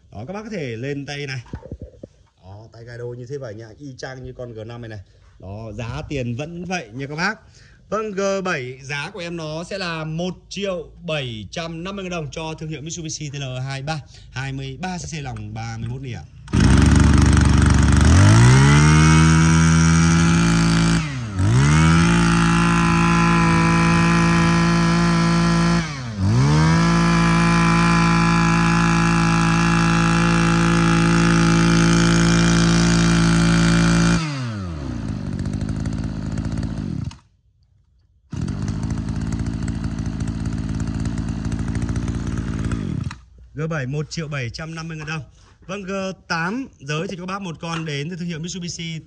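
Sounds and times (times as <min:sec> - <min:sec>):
brush cutter engine revving: 0:15.0 - 0:37.3, 0:38.3 - 0:43.4.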